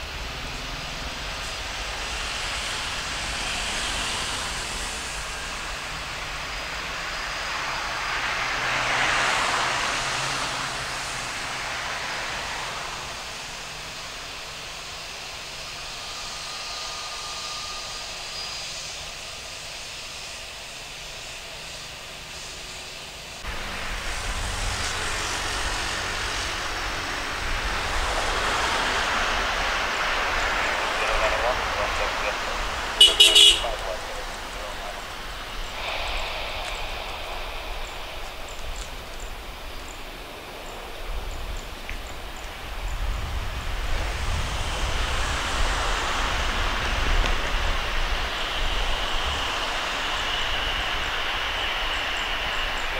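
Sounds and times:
jet engine roar: 0.0 - 52.9
low rumble: 33.6 - 52.9.

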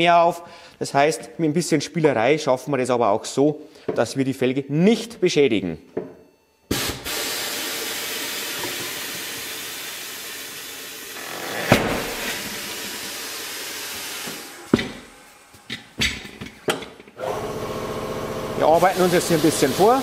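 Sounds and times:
compressed air hissing: 6.7 - 15.7.

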